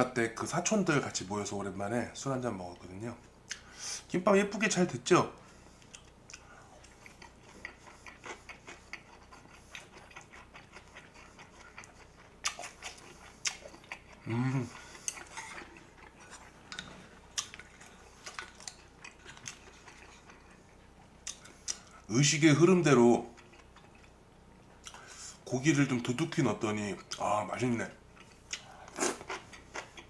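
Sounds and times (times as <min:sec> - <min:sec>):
wet mouth chewing clicks: 0:05.8 - 0:14.3, 0:21.2 - 0:21.9
person humming: 0:14.3 - 0:14.7.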